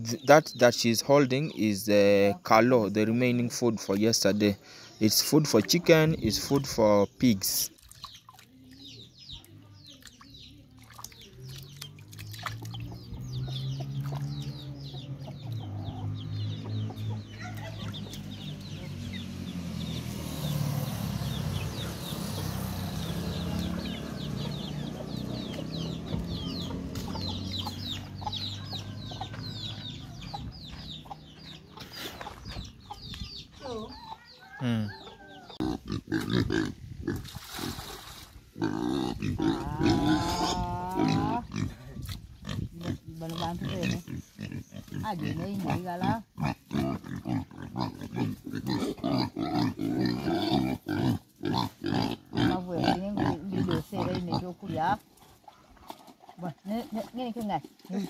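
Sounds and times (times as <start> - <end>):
chicks cheeping: 7.9 - 36.4
hens clucking: 23.2 - 36.3
pigs grunting and squealing: 34.5 - 37.8, 38.5 - 56.6.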